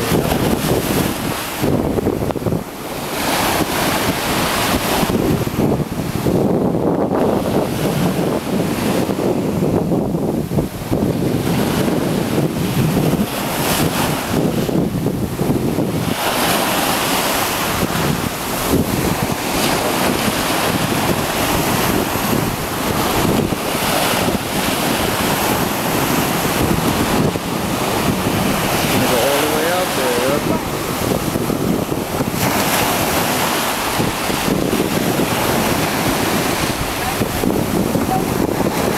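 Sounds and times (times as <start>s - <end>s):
surf washing onto beach: 0.0s - 38.9s
wind buffeting microphone: 0.0s - 38.9s.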